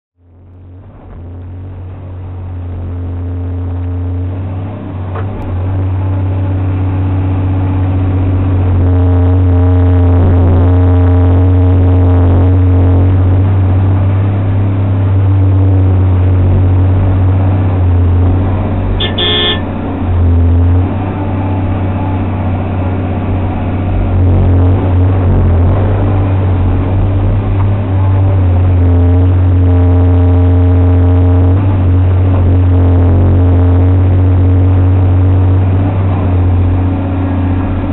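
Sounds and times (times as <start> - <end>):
excavator engine and hydraulics: 0.2 - 37.9
high-pitched tone: 19.0 - 19.7.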